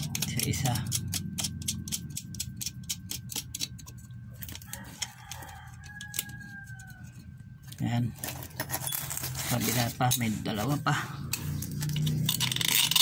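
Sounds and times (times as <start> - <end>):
rapid small metallic clicks: 0.0 - 7.2
steady low hum: 0.0 - 13.0.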